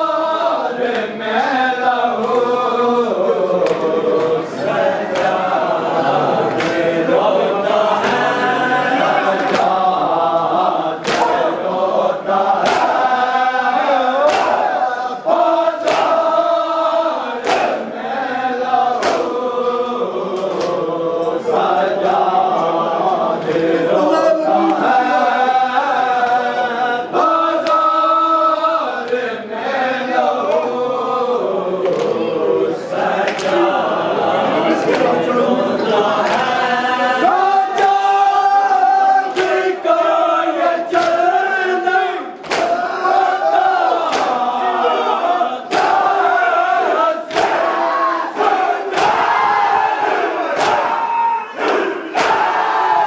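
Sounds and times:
mourners chanting: 0.0 - 53.0
hands slapping chests: 3.5 - 4.4, 5.1 - 5.6, 6.5 - 7.0, 9.4 - 9.8, 11.0 - 11.5, 12.6 - 13.1, 14.2 - 14.7, 15.8 - 16.3, 17.4 - 17.8, 19.0 - 19.4, 20.4 - 20.9, 27.6 - 27.8, 31.8 - 32.2, 33.2 - 33.7, 36.2 - 36.6, 37.7 - 38.2, 39.2 - 39.7, 40.9 - 41.3, 42.4 - 42.8, 44.0 - 44.5, 45.7 - 46.1, 47.3 - 47.7, 48.4 - 49.4, 50.5 - 52.6.

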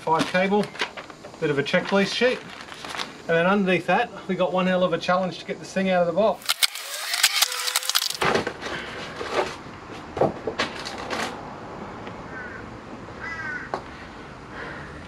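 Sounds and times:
cardboard and foam rustling: 1.7 - 3.2
plastic wrap crinkling: 1.8 - 3.2, 6.4 - 8.2.

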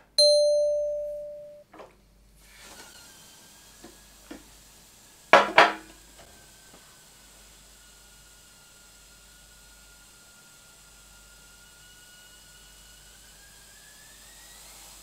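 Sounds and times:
bell-like ding: 0.2 - 1.6.

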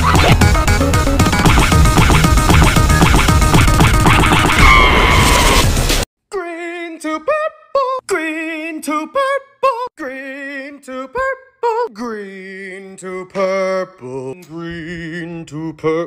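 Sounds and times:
person singing unaccompanied: 6.3 - 16.0.

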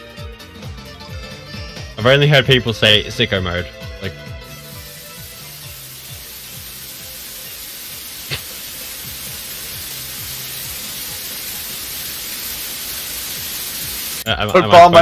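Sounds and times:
low background music: 0.0 - 15.0
white-noise riser hiss: 4.5 - 14.3.

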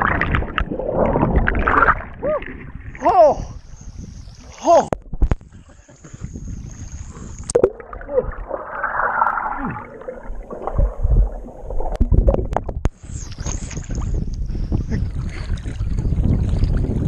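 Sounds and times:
underwater thuds and splashes: 4.9 - 5.4, 7.4 - 14.1
muffled underwater gurgling: 6.0 - 16.6.

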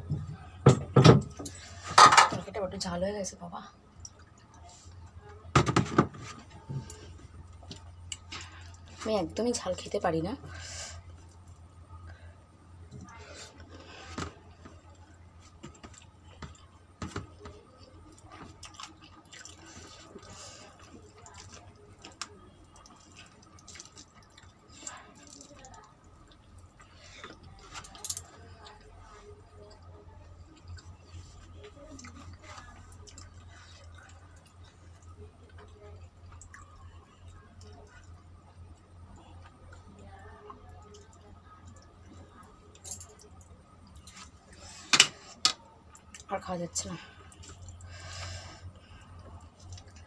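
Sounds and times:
steady low hum: 0.0 - 50.0
person chewing: 15.4 - 29.8, 30.4 - 39.9.

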